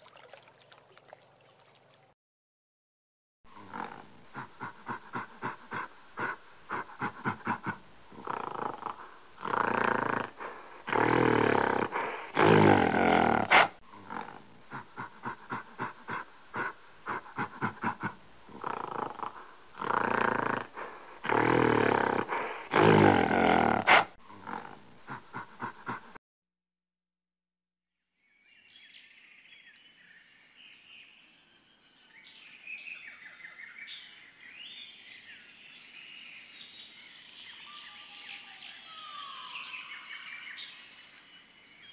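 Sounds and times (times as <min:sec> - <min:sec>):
animal roaring: 0:03.6 - 0:26.0
animal breathy grunts: 0:03.6 - 0:26.2
faint bird chirps: 0:28.2 - 0:41.9.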